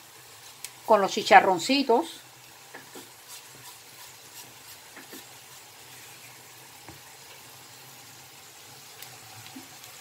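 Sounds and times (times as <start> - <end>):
spatula scraping a frying pan: 2.8 - 6.6.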